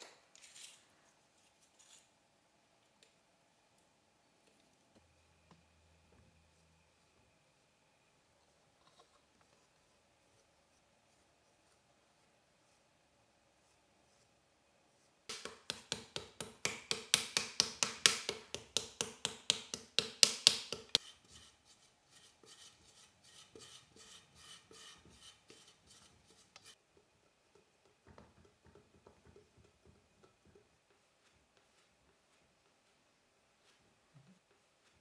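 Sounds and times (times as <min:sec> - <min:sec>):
hand scraping clay pot: 0:15.3 - 0:26.8.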